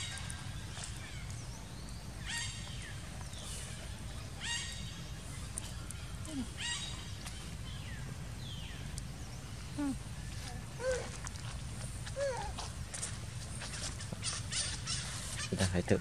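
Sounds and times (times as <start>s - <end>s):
low background noise: 0.0s - 16.0s
animal calling: 2.2s - 7.8s, 9.6s - 11.3s, 12.1s - 12.7s, 13.6s - 15.8s.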